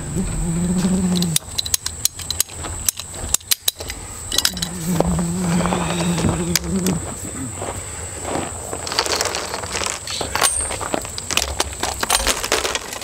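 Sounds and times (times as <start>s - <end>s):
engine hum: 0.0s - 12.8s
tools and fittings clinking: 1.2s - 4.8s, 8.8s - 13.0s.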